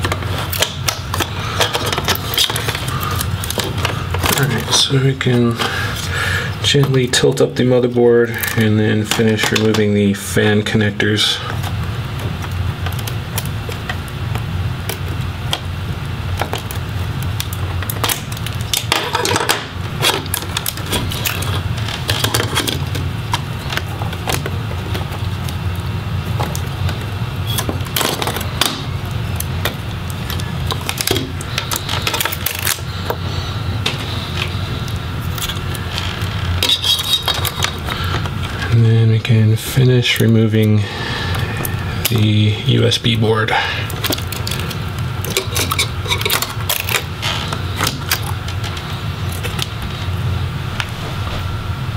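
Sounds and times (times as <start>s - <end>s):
laptop parts clicking and rattling: 0.0s - 4.8s, 16.4s - 25.6s, 26.2s - 38.4s, 43.9s - 49.7s
steady low hum: 0.0s - 51.9s.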